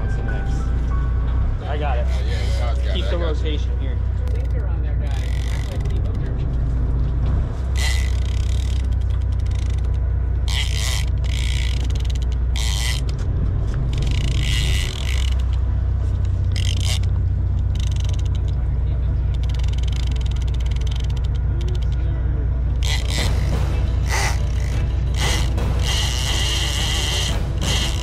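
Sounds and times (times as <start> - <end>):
low rumble: 0.0 - 28.0
fishing reel being cranked: 4.2 - 6.2, 7.8 - 13.2, 13.9 - 15.6, 16.5 - 18.6, 19.3 - 22.0, 22.8 - 28.0.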